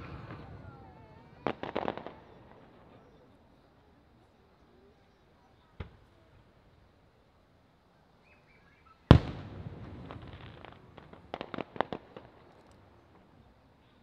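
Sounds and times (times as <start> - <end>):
firework bang with echo: 0.0 - 3.1, 9.1 - 12.4
firework pops: 0.0 - 3.1, 5.8 - 6.2, 9.1 - 13.3.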